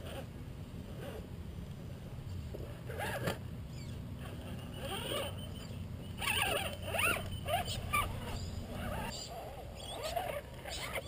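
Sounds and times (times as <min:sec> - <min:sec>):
steady low rumble: 0:00.0 - 0:09.8
birds calling warbling: 0:03.0 - 0:11.0.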